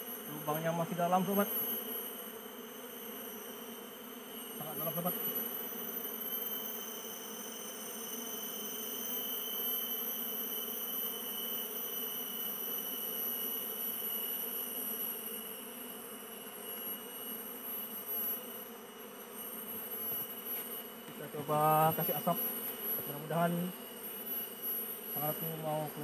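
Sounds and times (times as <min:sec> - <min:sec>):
bees buzzing: 0:00.0 - 0:26.0.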